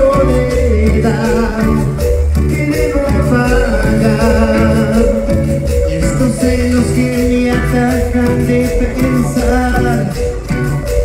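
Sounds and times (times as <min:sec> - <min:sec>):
live latin band playing: 0:00.0 - 0:11.0.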